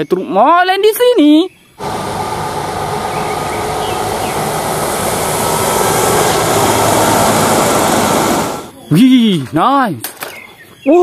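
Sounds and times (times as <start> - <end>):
truck engine driving past: 1.8 - 8.8.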